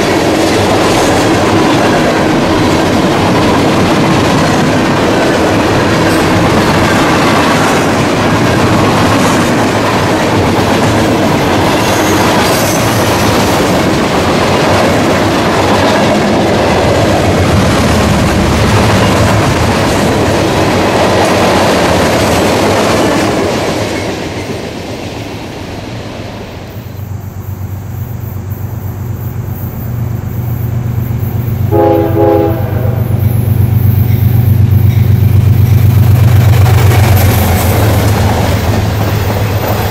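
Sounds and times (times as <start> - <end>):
diesel locomotive engine rumble: 0.0 - 39.9
train wheels on rails: 0.0 - 39.9
train horn: 31.7 - 33.3.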